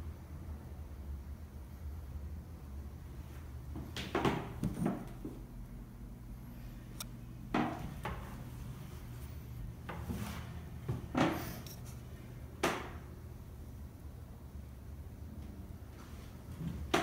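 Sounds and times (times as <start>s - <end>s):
low steady hum: 0.0s - 17.0s
knocks and thumps: 7.5s - 8.3s.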